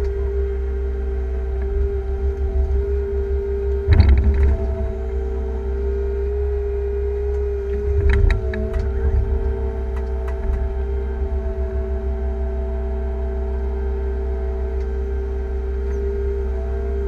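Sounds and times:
excavator engine and hydraulics: 0:00.0 - 0:17.0.

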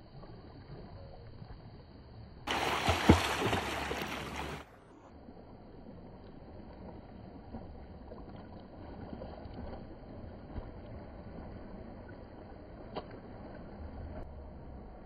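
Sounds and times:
low rumble: 0:00.0 - 0:15.0
seawater lapping and sloshing: 0:02.5 - 0:14.2
faint splashes: 0:02.5 - 0:14.8.

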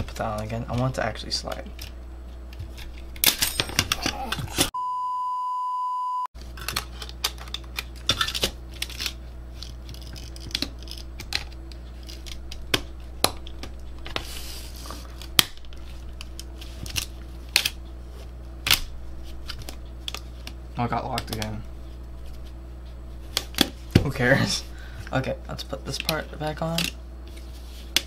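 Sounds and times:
steady low hum: 0:00.0 - 0:28.0
steady high beep: 0:04.8 - 0:06.3.

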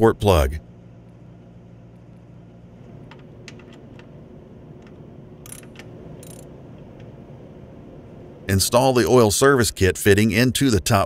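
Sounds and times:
metal clicks: 0:04.8 - 0:07.1
rapid ratchet clicking: 0:05.4 - 0:06.5.

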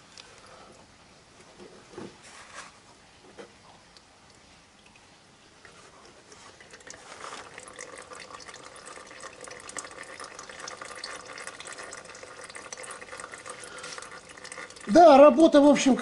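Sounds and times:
small oil drips: 0:03.9 - 0:15.6
oil trickling into plastic canister: 0:04.2 - 0:16.0.

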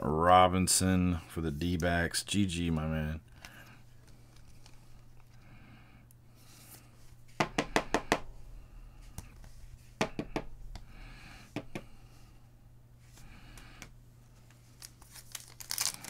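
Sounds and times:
cards in sleeves clicking: 0:13.5 - 0:16.0.

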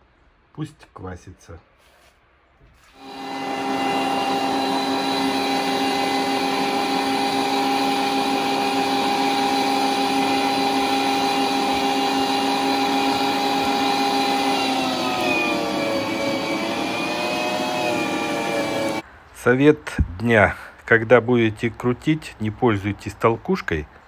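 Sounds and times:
electric meat grinder running: 0:03.0 - 0:19.0.

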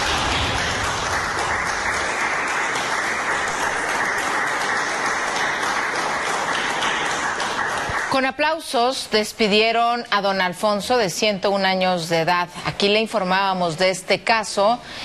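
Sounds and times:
people applauding: 0:00.0 - 0:08.5.

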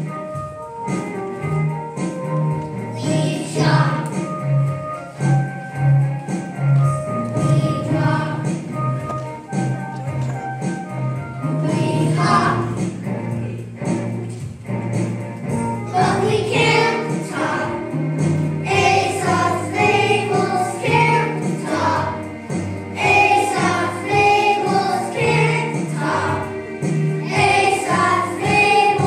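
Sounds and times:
instrumental backing: 0:00.0 - 0:29.0
children singing in chorus: 0:15.9 - 0:17.9, 0:18.6 - 0:22.3, 0:23.0 - 0:26.6, 0:27.2 - 0:29.0.

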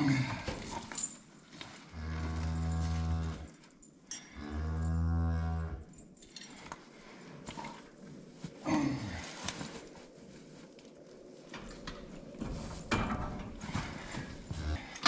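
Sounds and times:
cow mooing: 0:01.9 - 0:03.5, 0:04.4 - 0:05.9.

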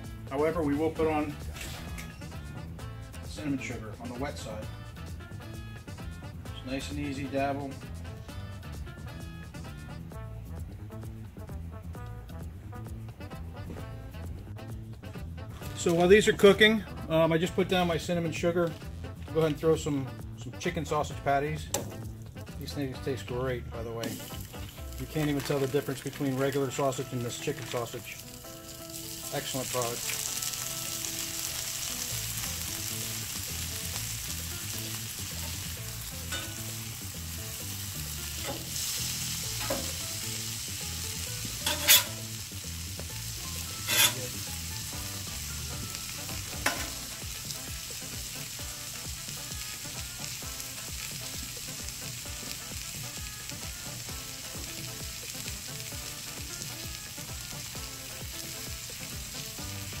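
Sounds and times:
food sizzling on a griddle: 0:24.0 - 1:00.0
metal spatula clinking on griddle: 0:36.3 - 0:36.7, 0:41.6 - 0:42.2, 0:43.8 - 0:44.3.

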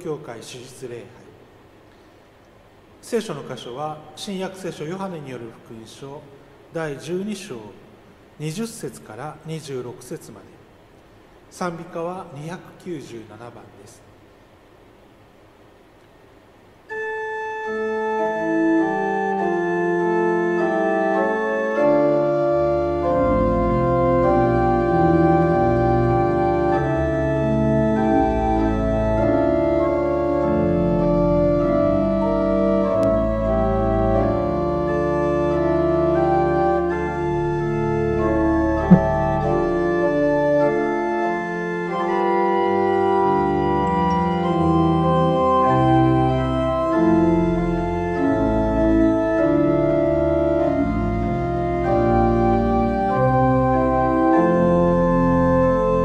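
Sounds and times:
pipe organ playing a hymn: 0:16.9 - 0:56.0
sharp tap: 0:38.9 - 0:39.2.

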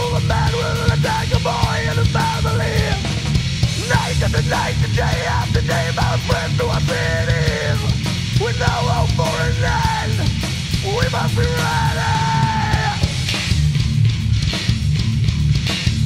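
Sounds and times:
person singing: 0:00.0 - 0:03.1, 0:03.8 - 0:13.1
punk rock band playing: 0:00.0 - 0:16.0.

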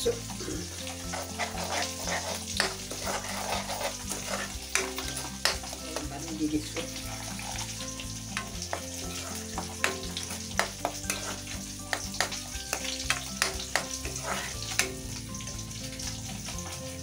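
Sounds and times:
food sizzling in a pan: 0:00.0 - 0:17.0
metal ladle clicking on pan: 0:04.7 - 0:05.8, 0:08.3 - 0:08.8, 0:09.6 - 0:15.1.

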